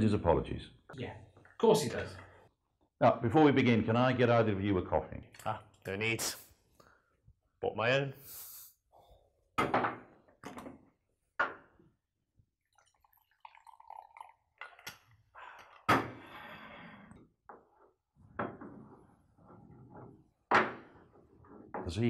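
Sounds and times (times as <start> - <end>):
coffee pouring into mug: 12.6 - 15.2.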